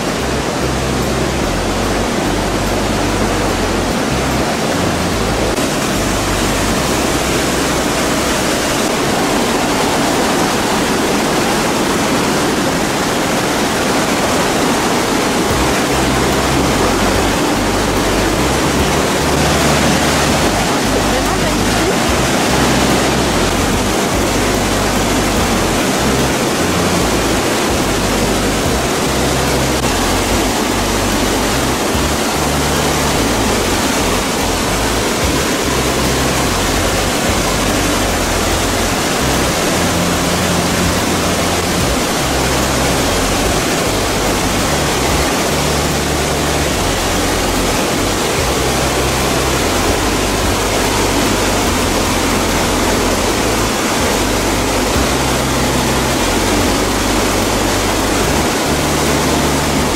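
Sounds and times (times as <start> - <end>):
waterfall rushing: 0.0 - 59.9.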